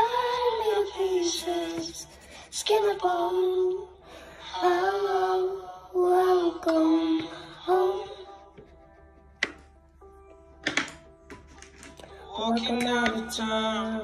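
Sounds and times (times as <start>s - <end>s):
girl singing unaccompanied: 0.0s - 8.5s.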